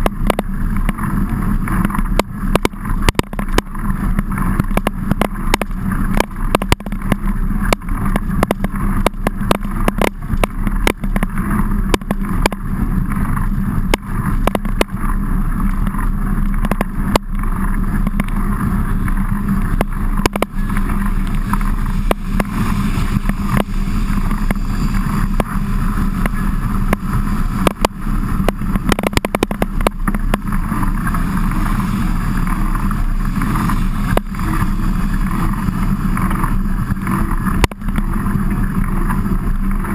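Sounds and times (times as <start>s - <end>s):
bike knocks and rattles: 0.0s - 39.9s
bike rumbling over rough ground: 0.0s - 39.9s
wind on microphone: 0.0s - 39.9s.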